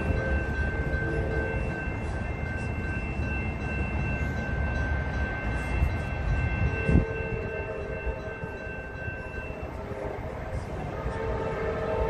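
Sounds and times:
train horn: 0:00.0 - 0:01.9, 0:06.6 - 0:08.8, 0:09.6 - 0:12.0
crossing warning bell ringing: 0:00.0 - 0:12.0.

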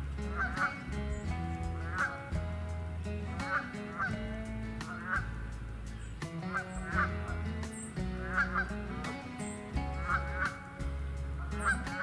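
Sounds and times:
background music with bass: 0:00.0 - 0:12.0
geese honking: 0:00.3 - 0:00.8, 0:01.8 - 0:02.2, 0:03.3 - 0:04.2, 0:06.5 - 0:07.2, 0:08.2 - 0:08.8, 0:10.0 - 0:10.6, 0:11.4 - 0:12.0.

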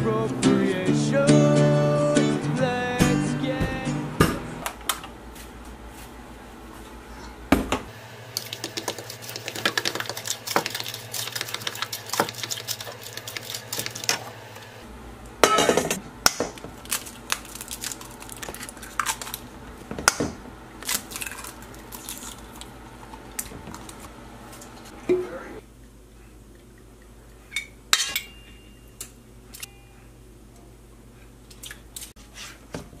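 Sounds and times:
spoon stirring in plastic cup: 0:08.4 - 0:14.2
spatula mixing in steel bowl: 0:08.4 - 0:14.3.

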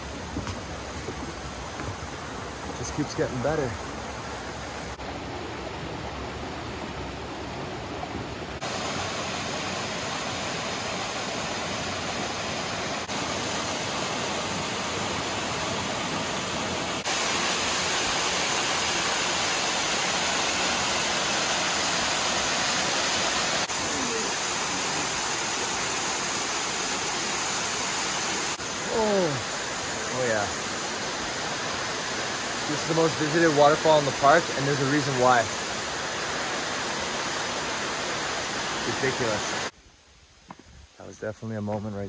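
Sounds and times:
stream spilling over rocks: 0:00.0 - 0:39.8
waterfall pouring: 0:08.6 - 0:39.8.

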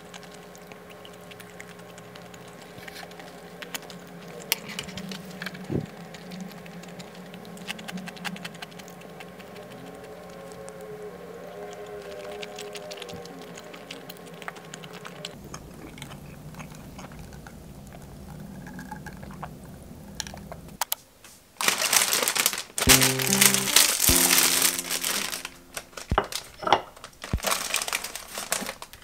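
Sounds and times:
plastic bag crinkling: 0:21.6 - 0:29.0
light background music: 0:22.9 - 0:26.3.

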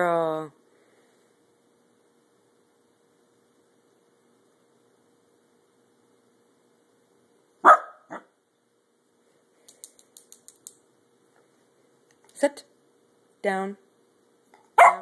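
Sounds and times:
puppy barking: 0:07.6 - 0:08.3, 0:14.8 - 0:15.0
faint light clicks: 0:09.6 - 0:10.8.

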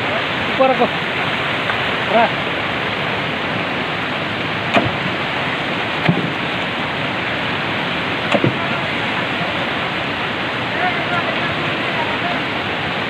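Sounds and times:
river rushing over boulders: 0:00.0 - 0:13.0
sharp knock: 0:04.7 - 0:05.0, 0:06.0 - 0:06.4, 0:08.3 - 0:08.7.

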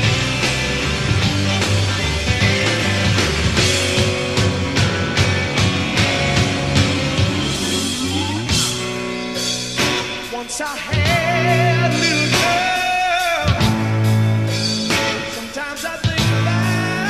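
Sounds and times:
live rock band playing: 0:00.0 - 0:17.0
drum hits: 0:00.7 - 0:11.3
man singing: 0:10.2 - 0:14.1, 0:15.1 - 0:17.0.

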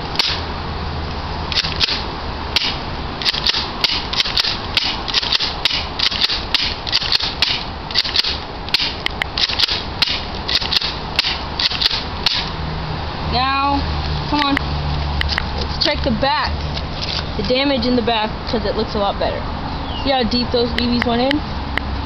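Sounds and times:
toy shotgun shots: 0:00.2 - 0:00.4, 0:01.5 - 0:02.0, 0:02.6 - 0:12.5.

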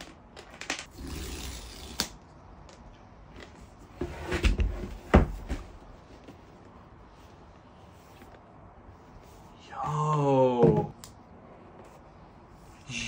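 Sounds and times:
paper tear strip ripping: 0:00.9 - 0:02.2
cardboard box knocks and thumps: 0:04.0 - 0:05.9.

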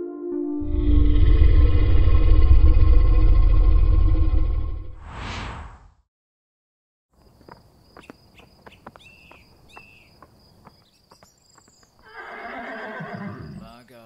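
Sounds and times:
rushing noise: 0:05.0 - 0:06.0.

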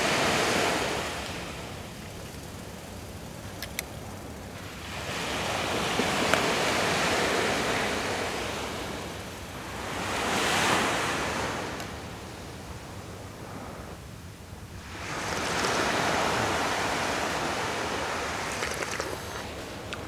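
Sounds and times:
sea waves on sandy beach: 0:00.0 - 0:14.0, 0:14.6 - 0:20.0
light clicks: 0:03.4 - 0:04.0.

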